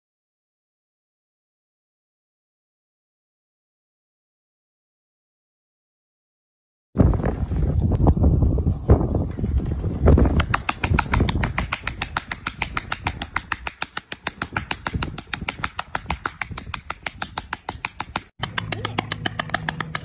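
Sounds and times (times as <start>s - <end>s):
low rumbling thumps: 7.0s - 13.1s
flipper slapping belly: 10.0s - 20.0s.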